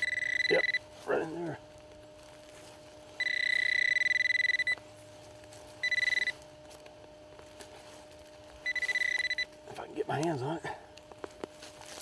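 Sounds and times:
pinpointer pulsing alert tone: 0.0s - 1.7s, 3.0s - 6.8s, 8.6s - 9.8s.

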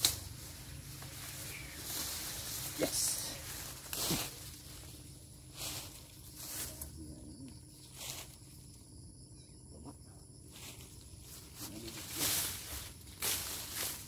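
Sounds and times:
dry leaves rustling by hand: 0.0s - 8.6s, 10.5s - 14.0s.

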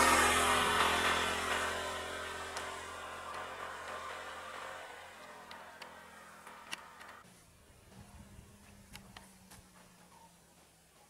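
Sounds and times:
vehicle passing: 0.0s - 7.2s
low engine hum: 0.0s - 11.0s.

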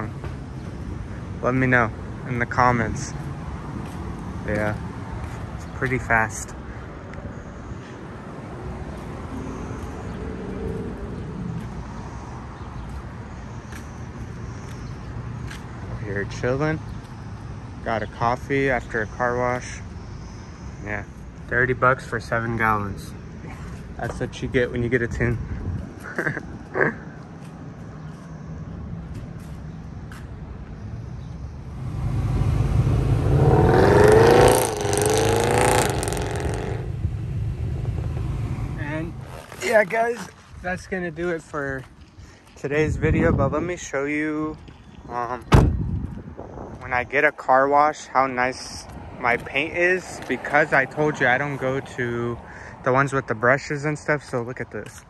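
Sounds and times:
road traffic rumble: 0.0s - 55.0s
car engine accelerating hard: 31.6s - 39.8s.

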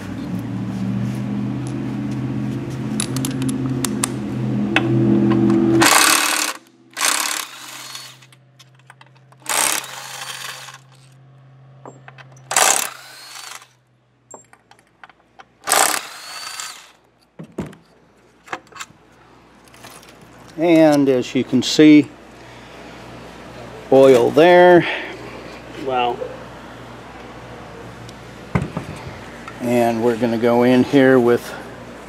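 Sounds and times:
machine hum: 2.3s - 14.2s, 15.6s - 17.1s
power driver whirring: 5.8s - 8.4s, 9.3s - 11.2s, 12.4s - 13.8s, 15.6s - 17.1s.

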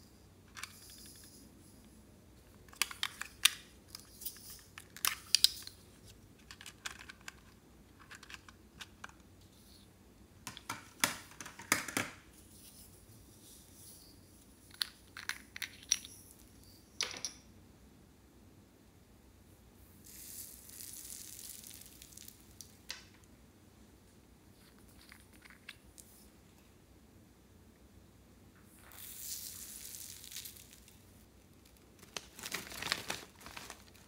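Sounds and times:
plastic containers clicking and rattling: 6.4s - 9.2s, 10.5s - 12.2s.

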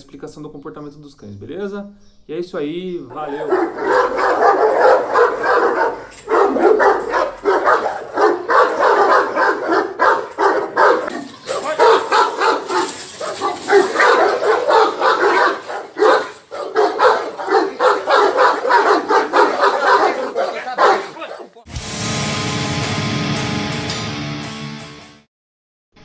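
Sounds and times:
dogs barking aggressively: 3.3s - 21.6s.

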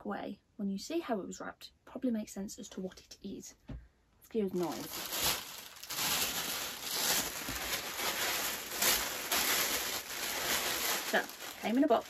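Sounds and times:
plastic wrapping and paper crinkling: 4.6s - 12.0s.

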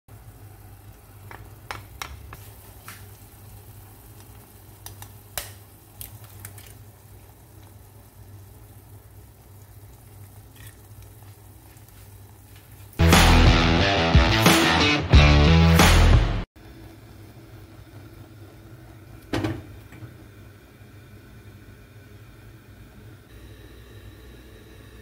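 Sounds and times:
food sizzling in frying pan: 0.1s - 13.1s.

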